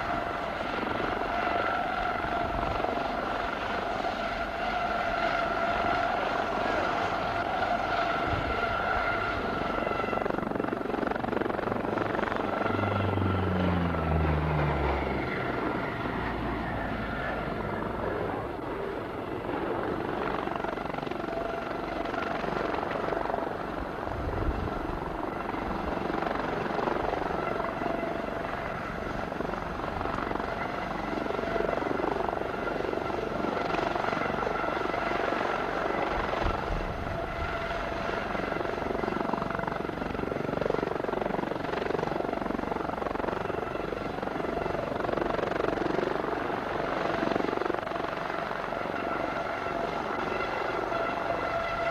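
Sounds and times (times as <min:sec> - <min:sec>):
helicopter hovering: 0:00.0 - 0:51.9
high engine whine: 0:05.8 - 0:19.9.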